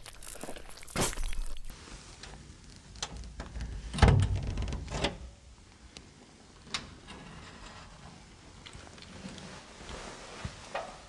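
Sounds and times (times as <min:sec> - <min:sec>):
sneaker footsteps on concrete: 0:00.0 - 0:01.7.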